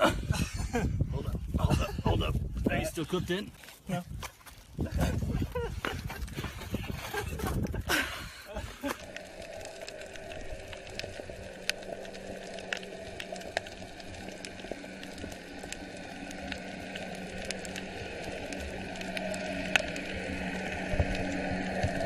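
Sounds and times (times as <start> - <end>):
sharp clicks and crackles: 3.4 - 22.0
muffled underwater hiss: 7.4 - 22.0.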